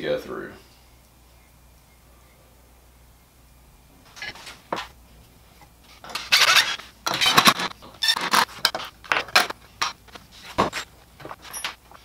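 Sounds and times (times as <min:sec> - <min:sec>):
drill bits clattering: 0:06.0 - 0:11.8.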